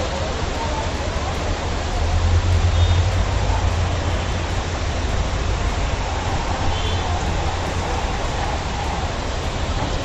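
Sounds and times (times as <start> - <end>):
steady noisy hiss: 0.0 - 10.0.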